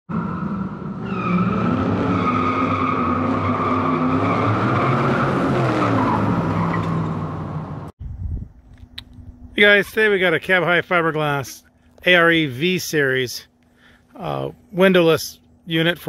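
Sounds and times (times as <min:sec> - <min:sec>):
car engine revving: 0:00.1 - 0:07.9.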